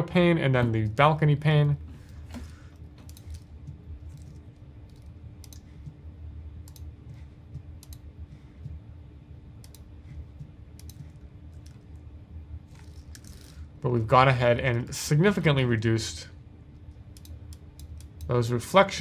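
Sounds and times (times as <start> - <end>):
low steady hum: 0.0 - 19.0
computer input clicks: 9.6 - 9.9.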